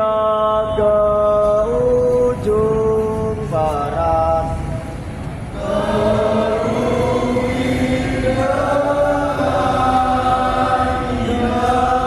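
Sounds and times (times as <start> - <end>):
slow choral chanting: 5.4 - 12.0.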